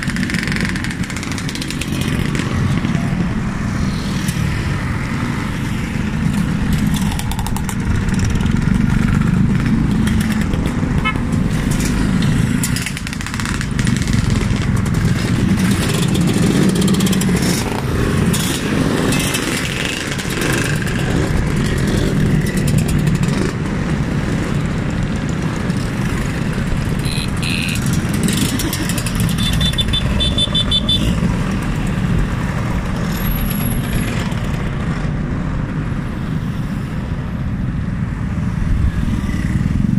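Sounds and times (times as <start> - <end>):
scooter engines droning past: 25.7 - 33.2
short high-pitched beeps: 27.0 - 27.8.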